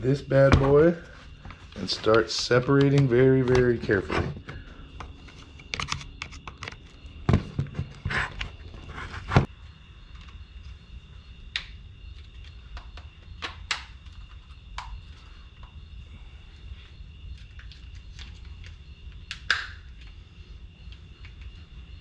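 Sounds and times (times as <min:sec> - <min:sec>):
plastic clicks and snaps: 0:17.6 - 0:20.1.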